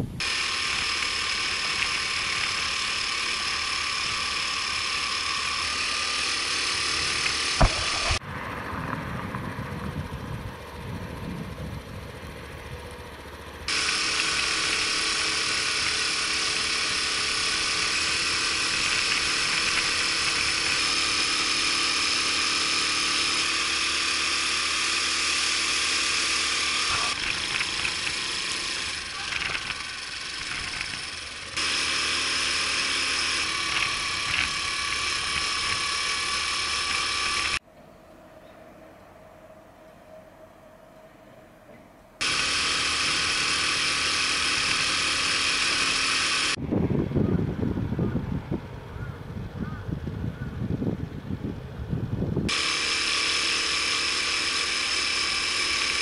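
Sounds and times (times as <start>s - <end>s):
motorcycle engine running: 0.0s - 37.6s, 42.2s - 56.0s
wind rushing over camera: 7.0s - 12.4s, 46.6s - 52.5s.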